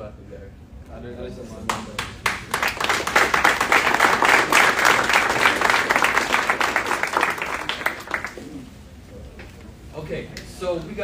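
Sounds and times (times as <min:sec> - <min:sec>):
audience applauding: 0:01.7 - 0:08.6.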